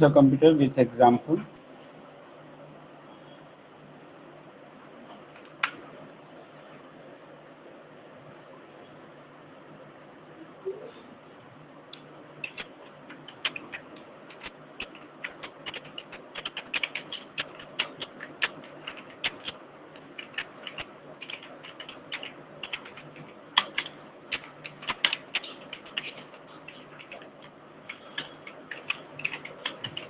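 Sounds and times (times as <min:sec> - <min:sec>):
computer keyboard typing: 0:05.3 - 0:05.8, 0:11.9 - 0:30.0.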